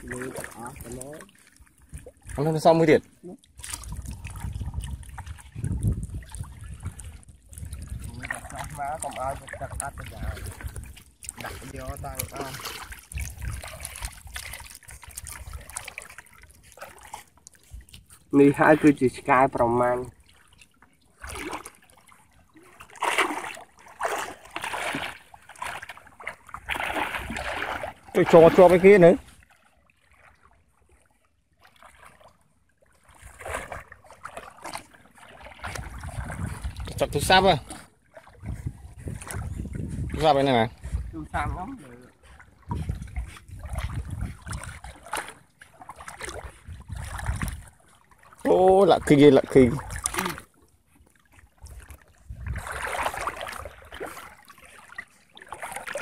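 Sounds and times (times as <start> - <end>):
water splashing around wading legs: 0.0 - 56.0
wind buffeting microphone: 3.7 - 15.8, 35.6 - 37.7, 38.3 - 45.0, 46.3 - 47.8, 51.6 - 53.8.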